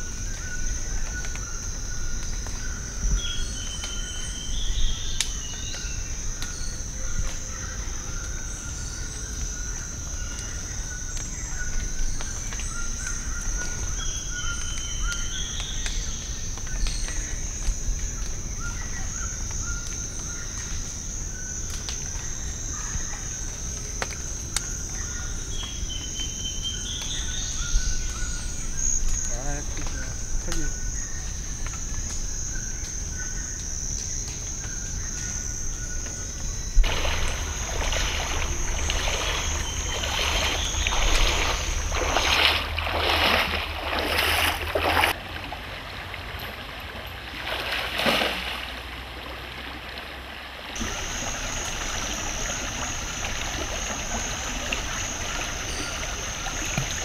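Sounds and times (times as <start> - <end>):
high-pitched insect drone: 0.0 - 45.2, 50.8 - 57.0
low insect trill: 0.0 - 45.2, 50.8 - 57.0.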